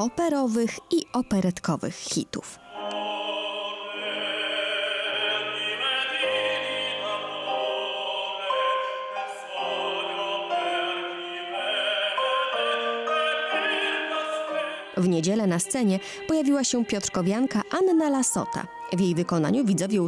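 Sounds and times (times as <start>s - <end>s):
grand piano accompaniment: 2.6s - 16.2s
man singing opera: 2.7s - 15.0s.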